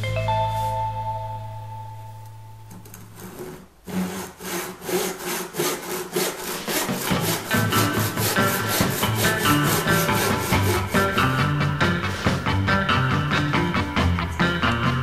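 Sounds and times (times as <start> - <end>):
background music: 0.0 - 2.8, 7.0 - 15.0
saw cutting wood: 3.1 - 11.4.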